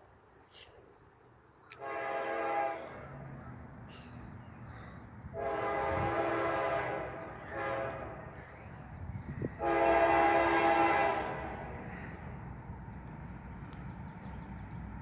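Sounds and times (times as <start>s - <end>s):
distant locomotive air horn: 1.7s - 3.3s, 5.3s - 8.8s, 9.4s - 12.2s.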